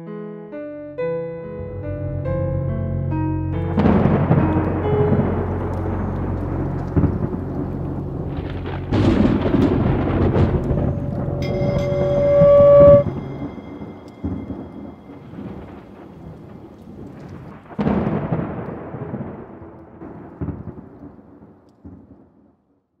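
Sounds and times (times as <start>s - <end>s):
held musical tone: 1.0s - 16.0s
thunder rolling: 1.6s - 22.2s.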